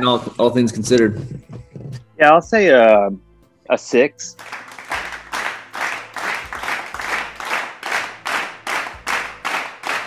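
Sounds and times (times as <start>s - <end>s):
rhythmic handclapping: 4.2s - 10.0s.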